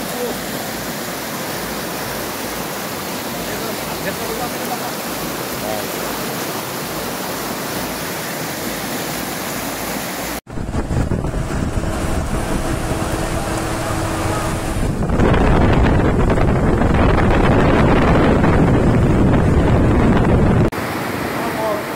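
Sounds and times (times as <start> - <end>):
heavy rain on flooded street: 0.0 - 10.4, 20.8 - 21.9
floodwater rushing: 0.0 - 21.9
wind buffeting microphone: 10.5 - 20.8.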